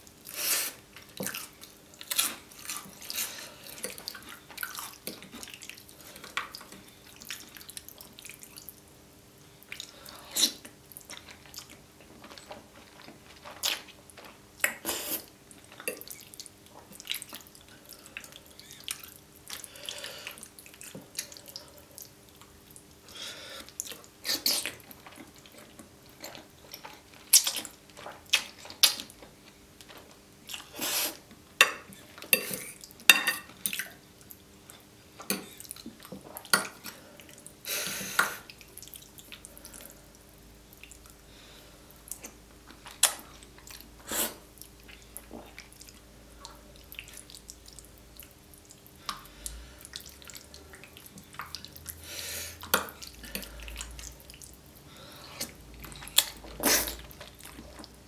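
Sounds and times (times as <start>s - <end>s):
wet chewing mouth sounds: 42.0s - 58.0s
noodles slurped: 55.2s - 58.0s.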